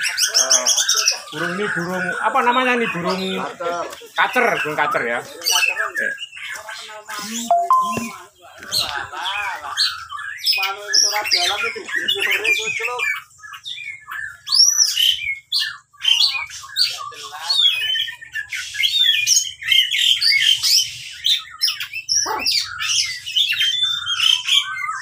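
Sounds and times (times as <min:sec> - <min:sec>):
bird singing varied whistles: 0:07.2 - 0:08.2.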